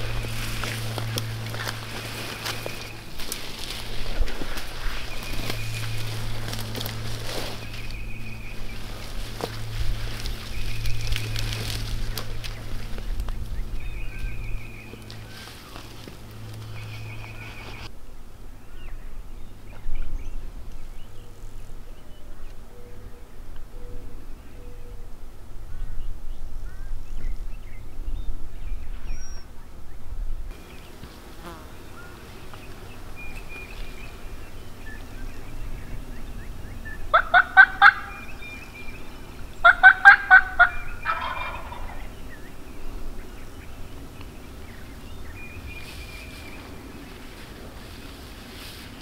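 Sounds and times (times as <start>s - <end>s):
turkey gobbling: 37.1s - 38.5s, 39.6s - 42.1s.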